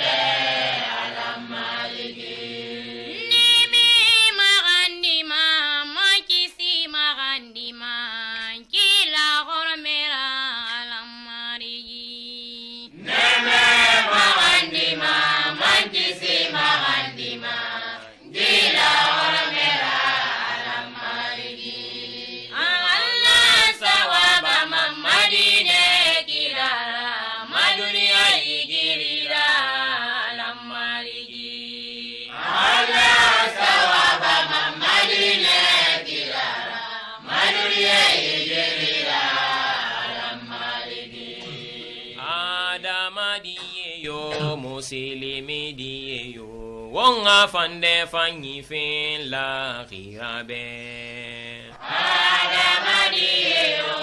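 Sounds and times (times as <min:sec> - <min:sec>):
person chanting: 0:41.4 - 0:51.8.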